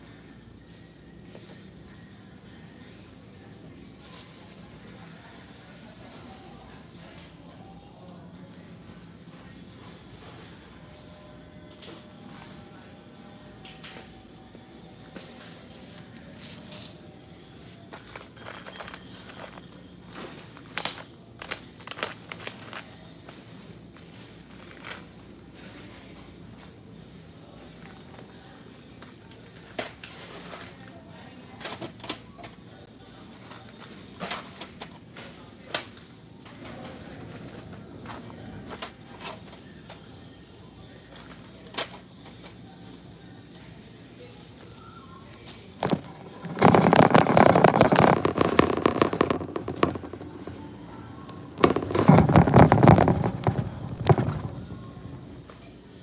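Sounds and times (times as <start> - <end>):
steady hum of a large store: 0.0 - 56.0
shopping cart rattling: 45.8 - 55.2.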